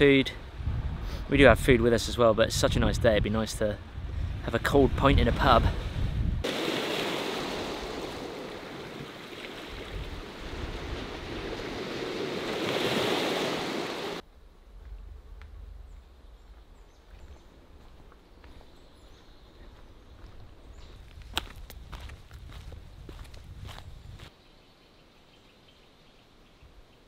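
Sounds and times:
small waves on pebble shore: 0:06.4 - 0:14.2
low outdoor rumble: 0:14.2 - 0:18.1.

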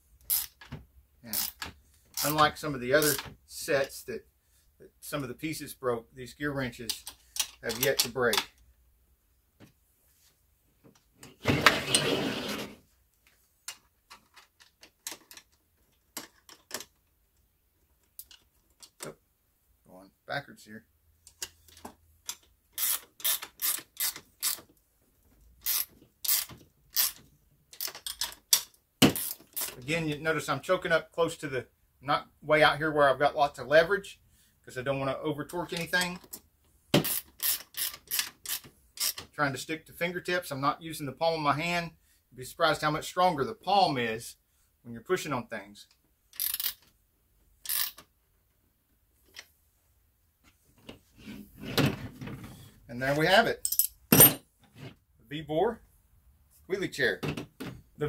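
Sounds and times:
hand ratchet clicking: 0:00.2 - 0:00.6, 0:01.3 - 0:02.4, 0:22.3 - 0:24.6, 0:25.6 - 0:27.2, 0:27.8 - 0:29.8, 0:37.0 - 0:39.2, 0:46.3 - 0:46.8, 0:47.6 - 0:48.0.

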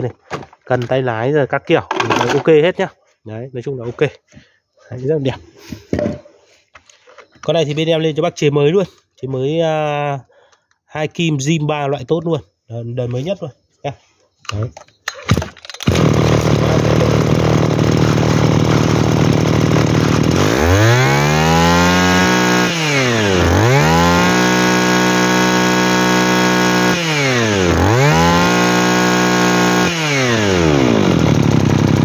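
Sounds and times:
brush cutter engine revving: 0:15.8 - 0:32.0.

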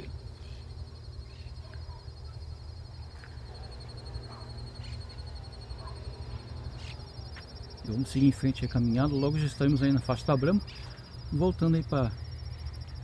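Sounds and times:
high-pitched insect trill: 0:00.0 - 0:13.0
faint bird calls: 0:03.2 - 0:07.3.

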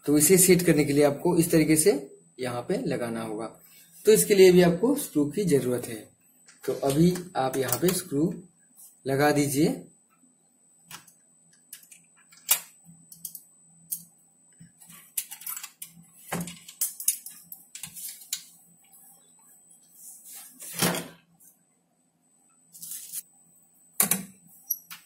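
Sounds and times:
faint steady hum: 0:00.0 - 0:25.0
screwdriver clicks and scrapes on metal: 0:15.1 - 0:18.5.

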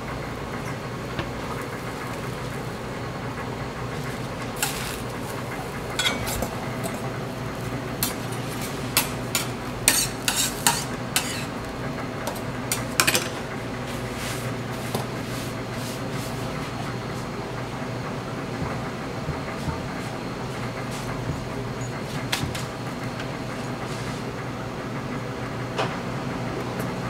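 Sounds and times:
metal utensils scraping griddle: 0:04.6 - 0:05.4, 0:06.0 - 0:07.0, 0:08.0 - 0:11.6.

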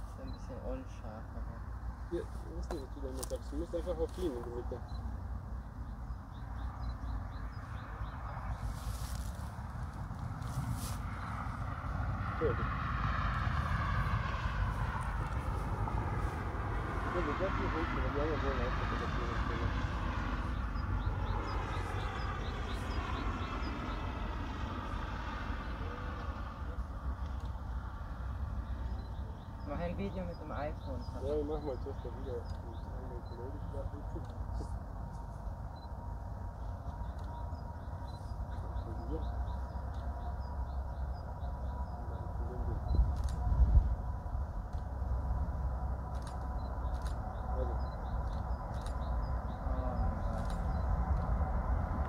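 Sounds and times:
deep jet rumble: 0:00.0 - 0:52.0
birds chirping faintly: 0:00.1 - 0:52.0
sharp clicks: 0:46.0 - 0:49.5, 0:50.2 - 0:51.4.

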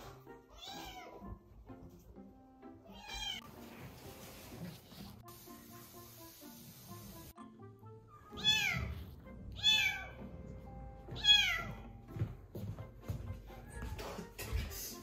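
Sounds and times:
soft background music: 0:00.0 - 0:15.0
kitten meowing: 0:08.3 - 0:08.9, 0:09.6 - 0:10.2.

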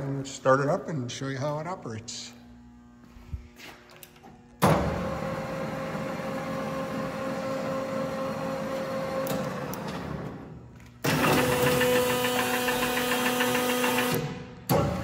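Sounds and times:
lathe motor humming: 0:05.0 - 0:14.2.

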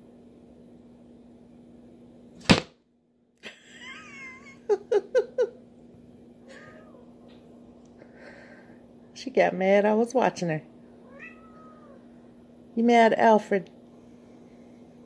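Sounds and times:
steady low hum: 0:00.0 - 0:15.0
sharp knock: 0:02.4 - 0:02.7
cat meowing: 0:06.4 - 0:07.1, 0:11.0 - 0:12.0.

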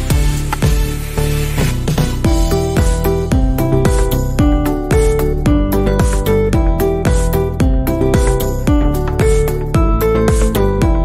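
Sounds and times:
drum beat: 0:02.0 - 0:11.0
held melodic notes: 0:02.3 - 0:11.0.

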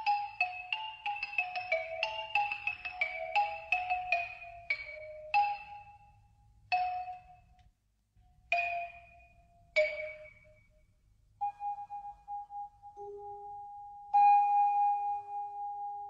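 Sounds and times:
mallet percussion notes ringing: 0:00.0 - 0:06.0, 0:06.7 - 0:07.5, 0:08.5 - 0:10.8.

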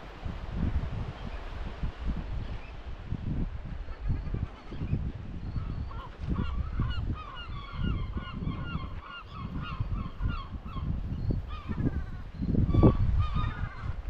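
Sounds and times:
wind buffeting microphone: 0:00.0 - 0:14.0
bird calling: 0:03.9 - 0:14.0.

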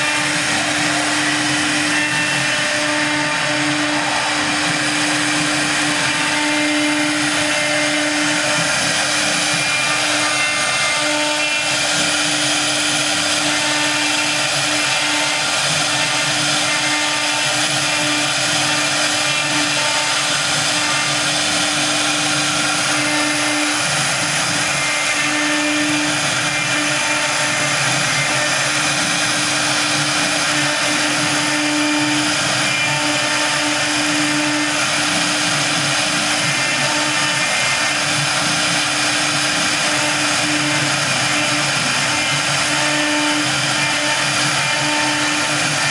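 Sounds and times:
cutter hissing into wood: 0:00.0 - 0:45.9
router spindle humming: 0:00.0 - 0:45.9.

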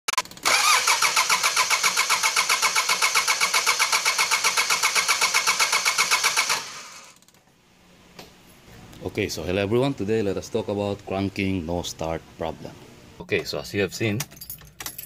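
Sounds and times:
starter motor cranking engine: 0:00.2 - 0:07.4.

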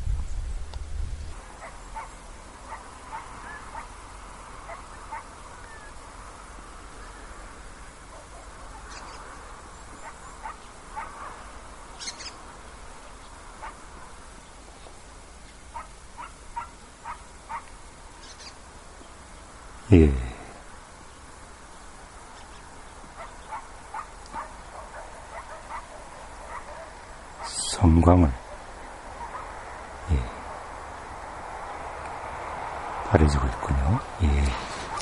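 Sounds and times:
low rumble on microphone: 0:00.0 - 0:01.4
distant animal calls: 0:01.3 - 0:06.2, 0:06.8 - 0:14.2, 0:15.6 - 0:18.7, 0:22.3 - 0:31.2, 0:34.5 - 0:35.0.

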